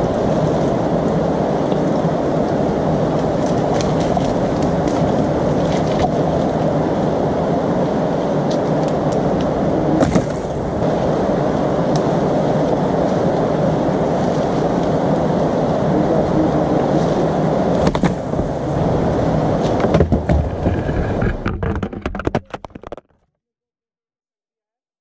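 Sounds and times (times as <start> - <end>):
fast-flowing river rushing: 0.0 - 19.8
dry wood cracking and snapping: 3.1 - 6.4.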